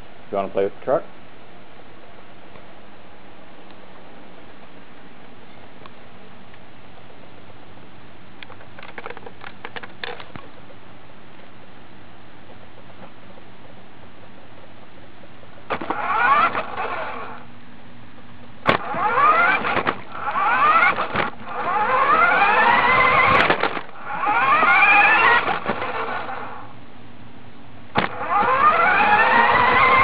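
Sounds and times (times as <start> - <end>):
toy truck electric motor whining: 15.7 - 17.4, 18.7 - 26.7, 28.0 - 30.0.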